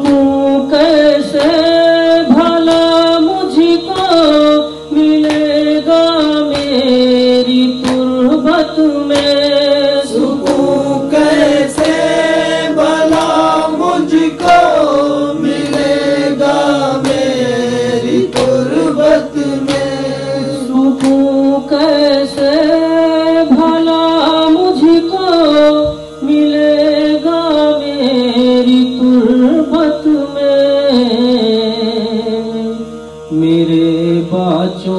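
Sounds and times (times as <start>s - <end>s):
sustained drone: 0.0s - 34.9s
layered voices chanting: 9.1s - 22.7s.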